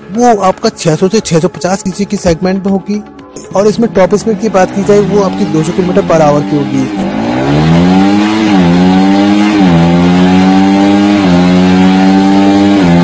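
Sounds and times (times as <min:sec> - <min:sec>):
motorcycle engine at high revs: 0:03.8 - 0:13.0.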